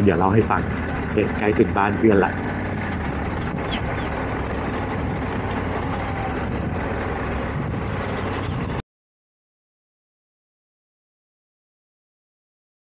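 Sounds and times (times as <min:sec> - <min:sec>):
motorcycle engine running: 0:00.0 - 0:08.8
wind and road noise: 0:00.0 - 0:08.8.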